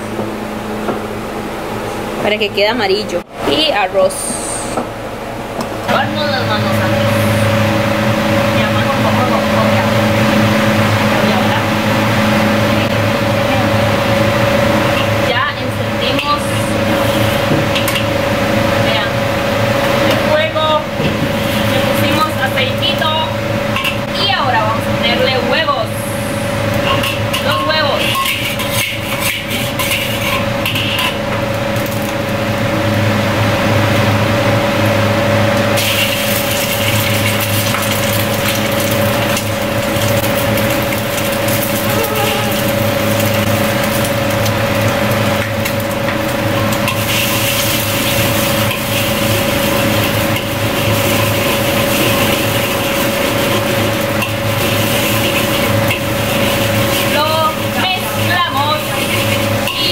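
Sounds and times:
machine hum: 0.0 - 59.9
metal ladle scraping wok: 26.5 - 31.3, 46.1 - 59.9
eggs sizzling in oil: 35.8 - 59.9.

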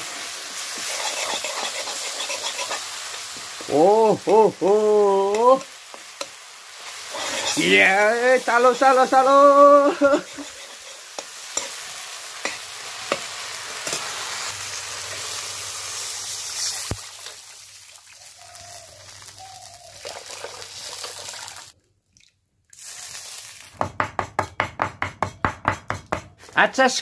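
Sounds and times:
ladle stirring in a pan: 0.0 - 4.4, 5.2 - 21.8
water poured into a hot pan: 0.0 - 5.9, 14.5 - 23.8
masala sizzling in a pan: 0.0 - 21.8, 22.7 - 24.0.

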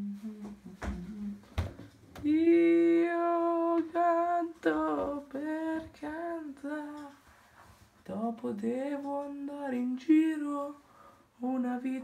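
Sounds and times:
person singing: 0.0 - 1.6, 2.2 - 7.2.

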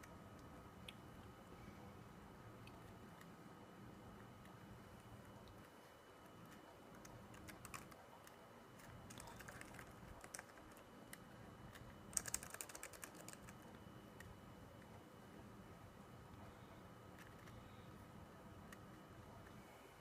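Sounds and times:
laptop keyboard typing: 2.6 - 15.0, 17.1 - 19.6.

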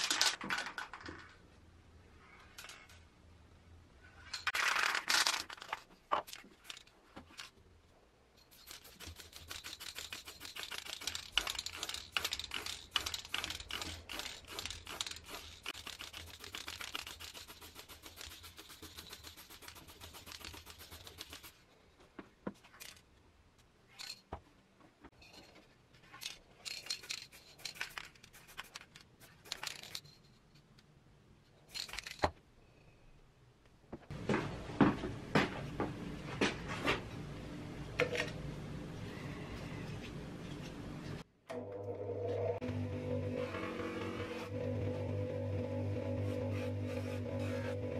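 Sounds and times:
fast clicks: 8.6 - 21.6.

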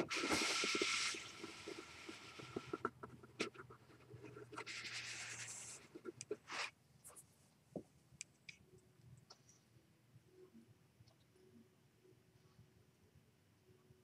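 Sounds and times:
scratchy rubbing on carpet: 0.0 - 7.4.

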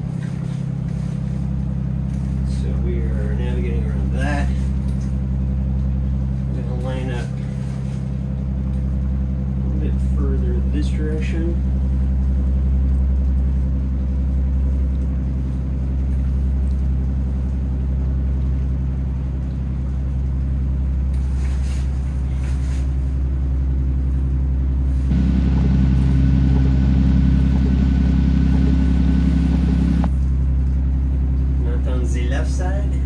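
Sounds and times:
boat engine drone: 0.0 - 33.0
high-pitched engine whine: 25.1 - 30.2.

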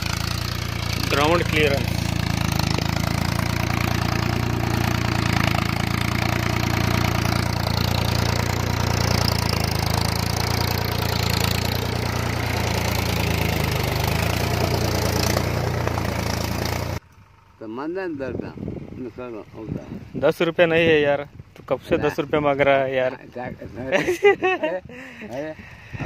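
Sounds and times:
tractor diesel engine running: 0.0 - 19.6.

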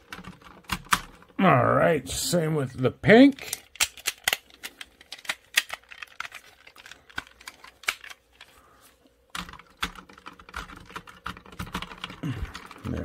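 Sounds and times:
plastic toy parts clicking: 0.0 - 1.4, 3.3 - 8.5, 9.3 - 13.0.

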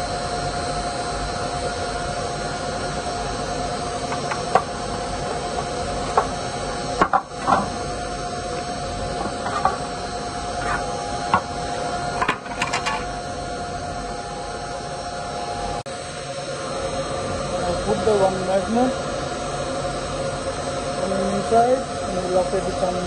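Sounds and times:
steady machine hum: 0.0 - 23.0.

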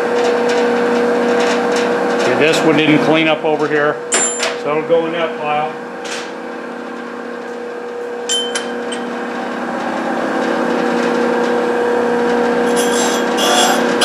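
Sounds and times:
cutter motor hum: 11.6 - 14.0
cutter rasping chatter: 12.7 - 13.9.

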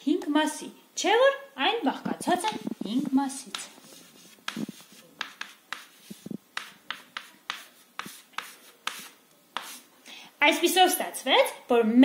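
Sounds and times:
chalk tapping and scratching: 2.4 - 9.9.

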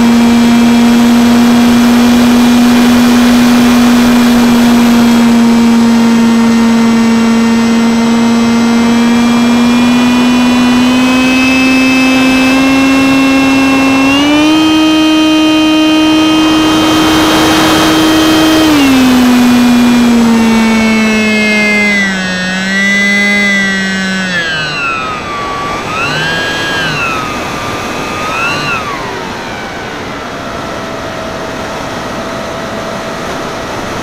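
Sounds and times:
electric motor and propeller whine: 0.0 - 34.0
wind rushing over microphone: 9.7 - 22.7.

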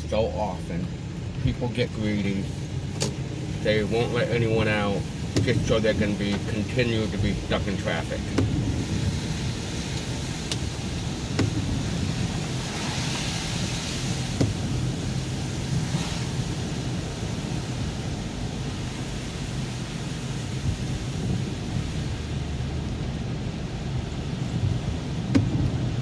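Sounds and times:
rain hiss on windshield: 0.0 - 26.0
tyres rumbling on wet road: 0.0 - 26.0.

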